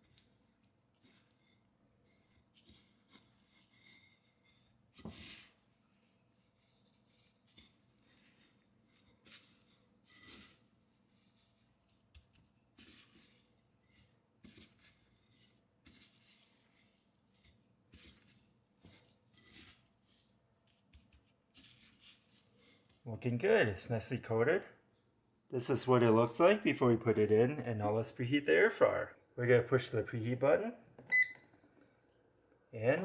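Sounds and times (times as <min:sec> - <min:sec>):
breadcrumbs rustling and scratching: 0:00.0 - 0:23.1.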